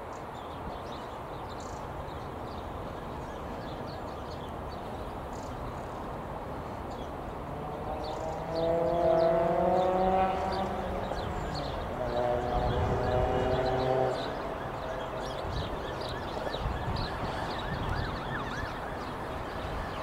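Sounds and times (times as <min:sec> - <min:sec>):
engine growl and whine: 0:07.4 - 0:15.2
birds chirping faintly: 0:07.9 - 0:20.0.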